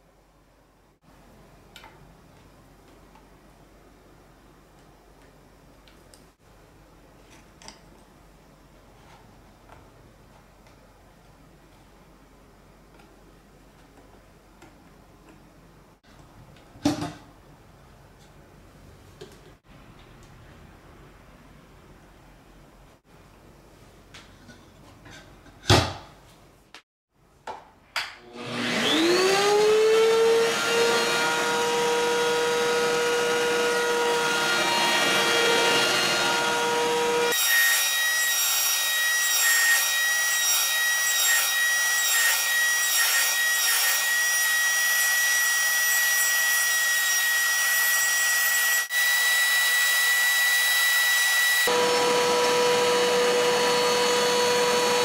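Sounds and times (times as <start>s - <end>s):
router cutting wooden dowel: 28.3s - 55.0s
router high whine: 28.3s - 55.0s.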